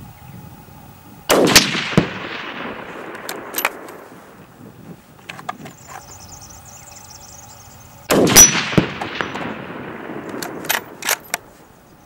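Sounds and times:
rifle shot echoing: 1.3 - 4.4, 8.1 - 11.6
rifle bolt metallic clicks: 3.1 - 4.0, 10.2 - 11.5.

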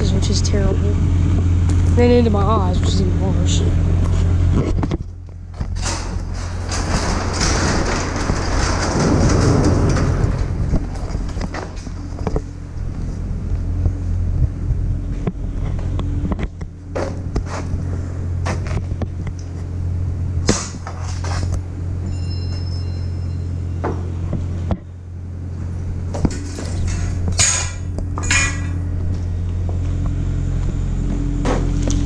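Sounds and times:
low engine-like hum: 0.0 - 32.0
steel sections knocking and clanking: 5.5 - 12.5, 26.1 - 28.8.

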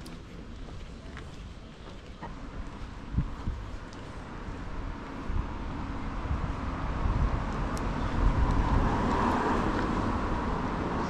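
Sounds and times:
city street traffic: 0.0 - 11.0
vehicle passing: 3.0 - 11.0.

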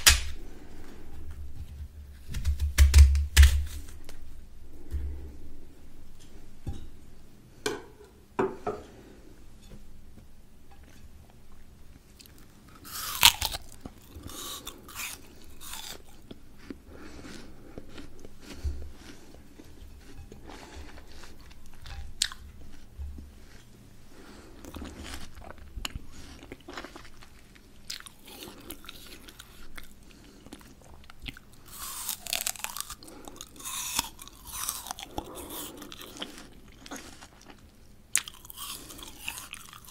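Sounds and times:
person chewing crisp fruit: 0.0 - 1.4, 10.8 - 39.9.

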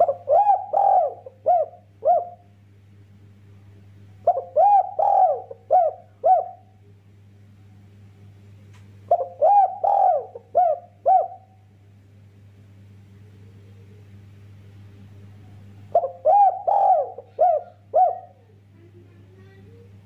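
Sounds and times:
dove cooing: 0.0 - 2.5, 4.2 - 6.8, 9.1 - 11.6, 15.9 - 18.6.

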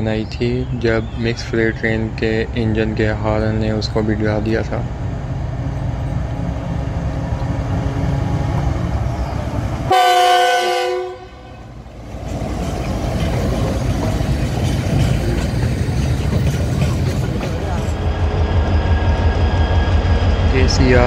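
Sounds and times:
diesel locomotive rumbling: 0.0 - 21.0
loud train horn blast: 9.9 - 11.9
freight wagons clattering: 12.1 - 18.0.

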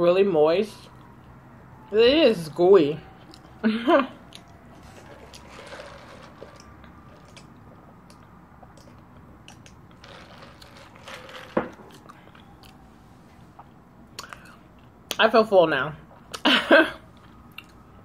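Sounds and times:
soft chewing: 3.1 - 3.6, 4.2 - 10.0, 11.9 - 15.2, 17.1 - 18.0.

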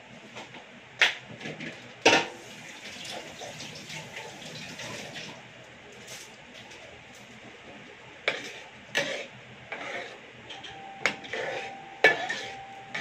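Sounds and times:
faint steady tone: 10.6 - 13.0
metal spoon clinking on a pan: 10.6 - 13.0.

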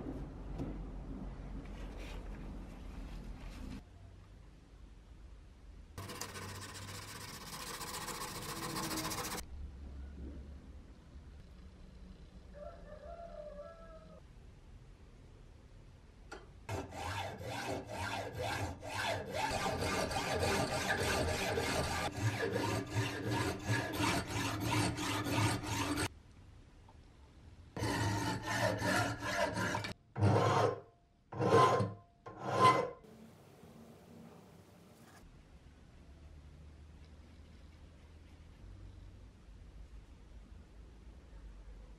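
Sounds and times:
hacksaw cutting metal tube: 6.0 - 9.4, 16.7 - 26.1, 27.8 - 33.0.

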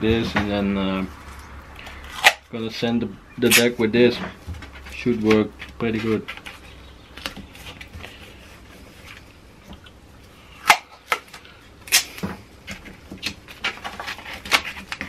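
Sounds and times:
tape ripping: 10.6 - 15.0.

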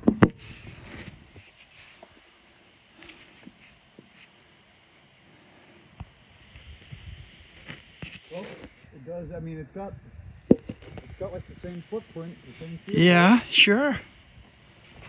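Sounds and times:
faint insect chirping: 0.3 - 15.0
sharp knock: 10.5 - 10.8.

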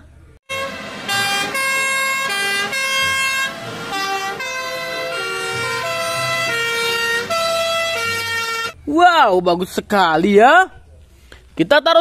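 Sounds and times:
two-tone fire engine sirens: 0.5 - 8.8.

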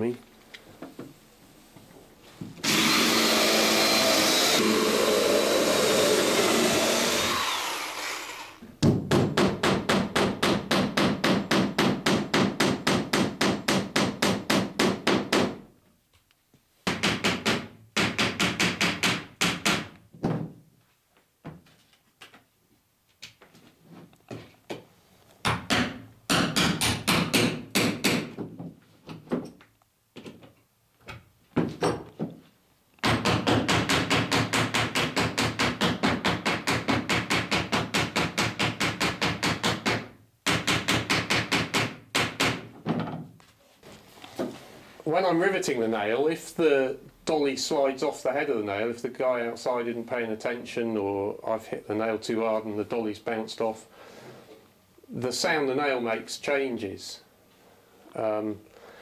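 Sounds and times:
cordless drill boring wood: 2.6 - 8.6
hammer tapping nails: 8.8 - 15.6, 16.8 - 20.0, 25.4 - 28.5, 33.0 - 42.7.

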